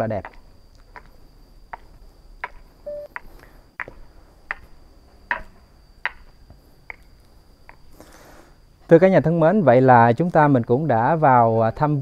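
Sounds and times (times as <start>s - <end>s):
footsteps on hard ground: 0.0s - 7.9s
faint high-pitched tone: 2.9s - 3.1s, 10.8s - 12.0s.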